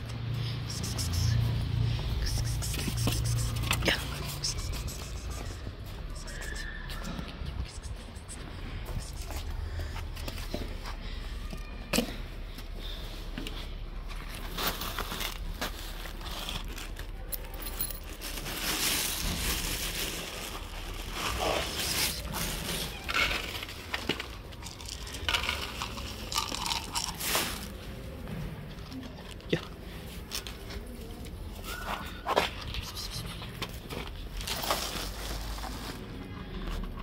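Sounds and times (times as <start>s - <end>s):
cats crunching dry kibble: 0.1s - 10.5s, 14.3s - 28.0s.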